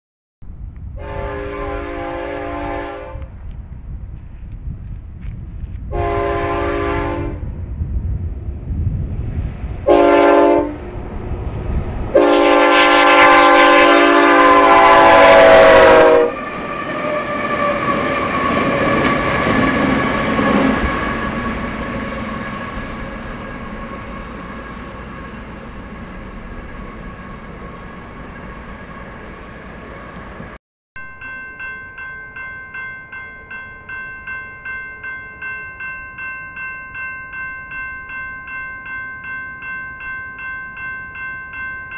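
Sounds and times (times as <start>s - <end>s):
passing train running noise: 0.5s - 41.9s
locomotive horn blowing: 1.0s - 3.3s, 5.9s - 7.4s, 9.9s - 10.8s, 12.2s - 19.3s.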